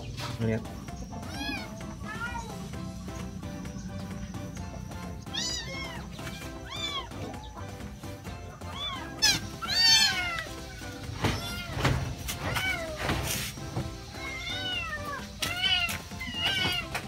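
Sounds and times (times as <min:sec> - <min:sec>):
kittens meowing: 0:01.1 - 0:02.8, 0:04.8 - 0:13.4, 0:14.1 - 0:17.0.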